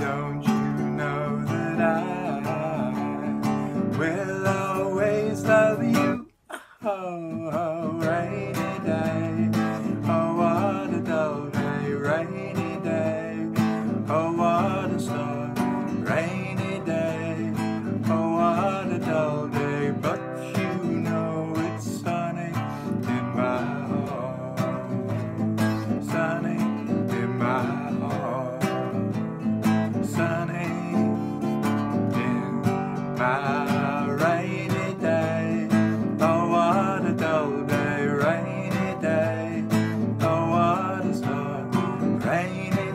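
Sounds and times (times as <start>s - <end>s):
acoustic guitar strumming: 0.0s - 42.9s
man singing: 0.0s - 42.9s.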